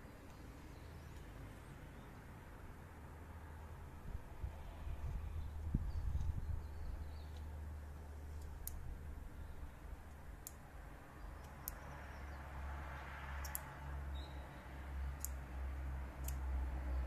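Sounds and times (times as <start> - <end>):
faint sharp clicks: 8.4 - 8.9, 10.0 - 10.7, 11.4 - 11.9, 13.4 - 13.8, 15.2 - 15.4.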